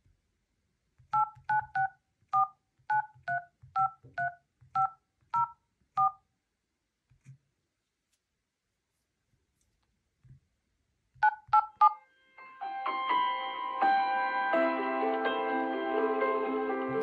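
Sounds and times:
keypad touch tone beeps: 1.2 - 6.2, 11.2 - 12.0
finger tapping on screen: 11.2 - 12.0.

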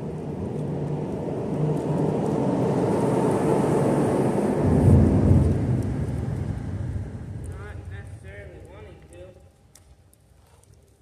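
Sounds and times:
traffic rumbling over a bridge: 0.0 - 8.3.

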